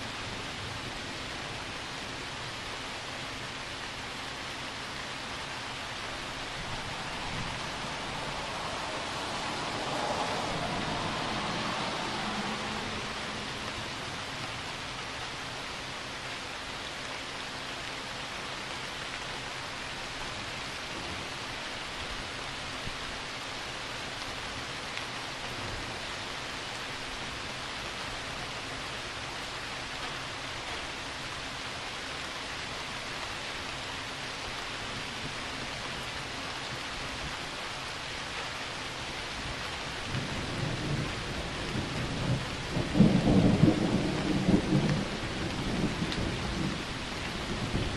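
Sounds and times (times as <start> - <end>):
steady rain falling: 0.0 - 47.9
thunder rumbling: 6.5 - 14.0, 40.1 - 47.9.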